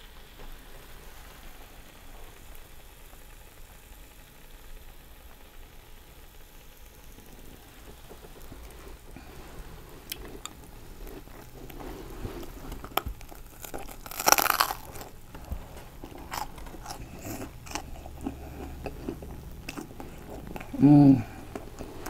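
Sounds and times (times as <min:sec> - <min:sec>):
crunching and chewing sandwich: 0:07.1 - 0:22.0.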